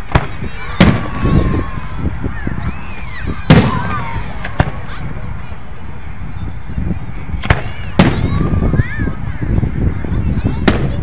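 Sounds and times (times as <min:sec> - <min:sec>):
fireworks bursting: 0:00.0 - 0:01.7, 0:02.9 - 0:05.4, 0:07.4 - 0:08.4, 0:10.6 - 0:11.0.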